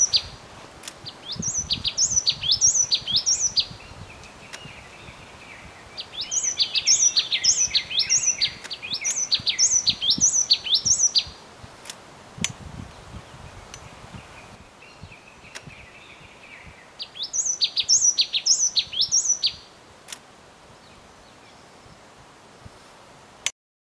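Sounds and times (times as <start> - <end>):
songbird singing high notes: 0.0 - 0.4, 1.0 - 11.4, 13.8 - 19.7
soft lower bird warble: 1.0 - 11.4.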